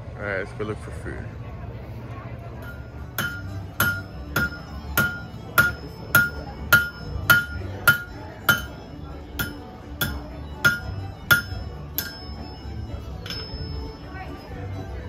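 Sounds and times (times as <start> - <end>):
hammer striking metal on anvil: 2.6 - 14.2.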